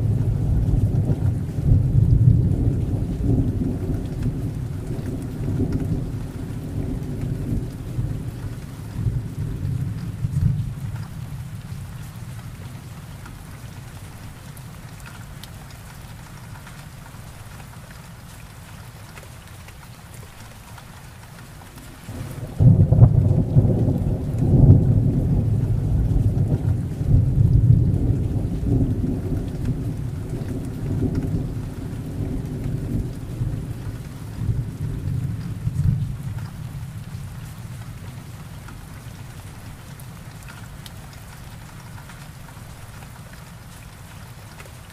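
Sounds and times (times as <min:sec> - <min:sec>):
thunder rumbling: 0:00.0 - 0:11.8, 0:22.0 - 0:38.1
heavy rain falling: 0:00.0 - 0:44.9.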